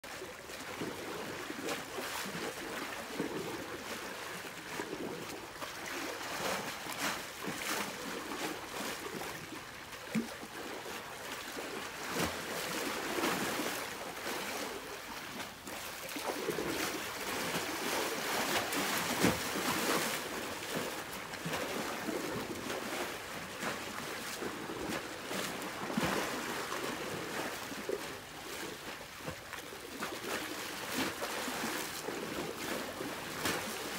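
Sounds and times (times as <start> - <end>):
water lapping against shore: 0.0 - 33.9.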